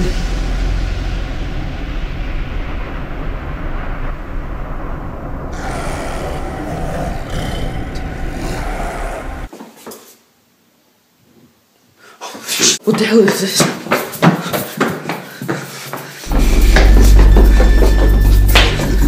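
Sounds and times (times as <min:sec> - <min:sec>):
low rumbling horror drone: 0:00.0 - 0:09.5, 0:16.3 - 0:19.0.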